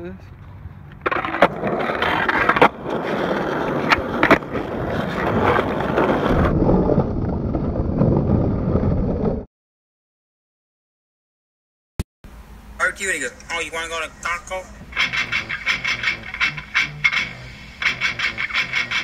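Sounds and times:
skateboard wheels rolling on asphalt: 0:00.3 - 0:09.5, 0:14.3 - 0:19.0
skateboard clacks: 0:00.9 - 0:06.5, 0:14.2 - 0:19.0.

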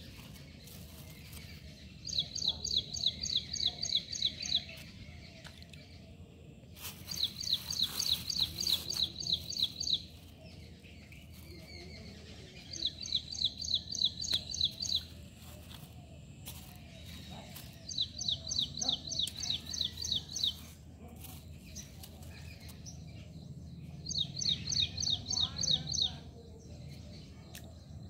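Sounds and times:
outdoor background noise: 0:00.0 - 0:28.0
bird chirping rapidly: 0:06.8 - 0:15.9, 0:23.9 - 0:26.2.

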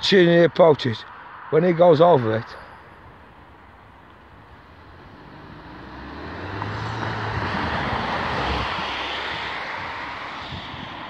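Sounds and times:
car driving past: 0:03.4 - 0:11.0.

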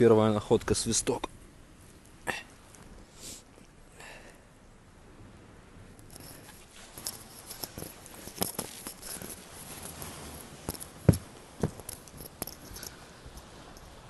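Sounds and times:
microphone handling rustle: 0:06.0 - 0:14.0
footsteps on sand: 0:09.4 - 0:12.0
footsteps on wooden boardwalk: 0:09.6 - 0:12.0
sharp knocks: 0:11.0 - 0:12.0.

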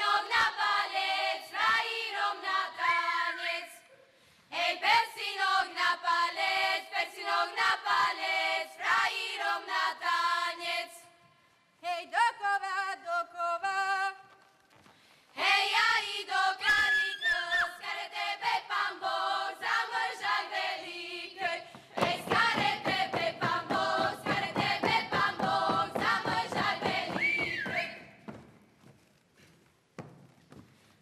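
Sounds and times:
girls singing a cappella: 0:00.0 - 0:03.9, 0:04.5 - 0:11.2, 0:11.8 - 0:14.2, 0:15.4 - 0:28.1
feet stamping: 0:21.6 - 0:31.0.

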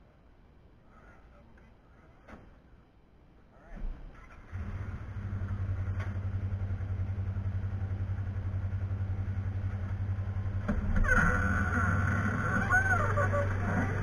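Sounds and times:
motor humming steadily: 0:04.5 - 0:14.0.

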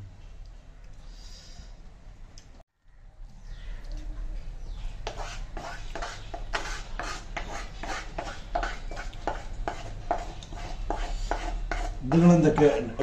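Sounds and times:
wooden spatula scraping a pan: 0:05.1 - 0:13.0.

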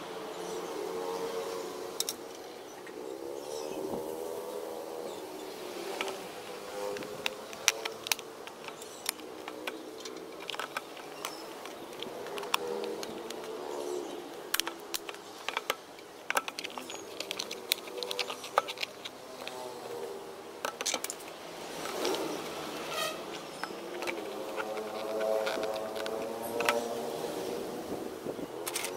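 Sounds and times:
outdoor background hum: 0:00.0 - 0:28.9
plastic fittings clicking and tapping: 0:07.0 - 0:13.6, 0:14.5 - 0:19.6, 0:23.3 - 0:26.8.

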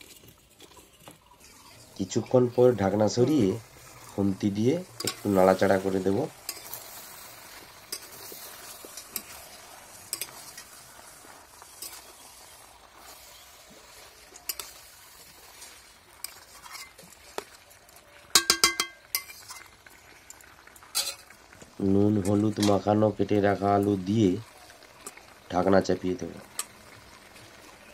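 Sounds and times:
metal spatula scraping pan: 0:00.0 - 0:17.5, 0:18.3 - 0:19.8, 0:20.9 - 0:21.3
faint sizzle of meat: 0:00.0 - 0:27.9
spatula clinking against pan: 0:18.3 - 0:19.6.

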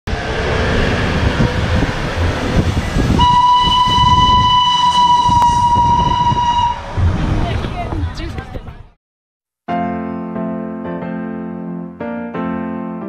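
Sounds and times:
low rumble: 0:00.1 - 0:08.7
steam locomotive whistle: 0:03.0 - 0:07.0.

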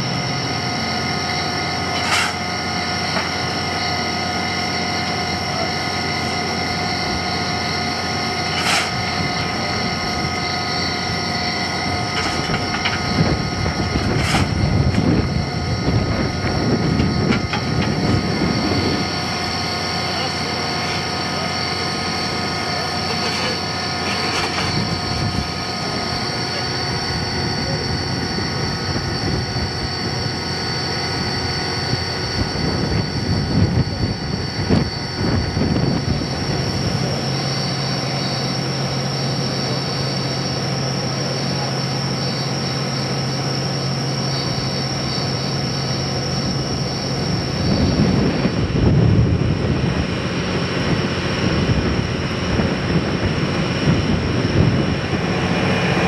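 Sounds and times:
high-pitched drone: 0:00.0 - 0:56.0
steam locomotive running: 0:00.0 - 0:56.0.

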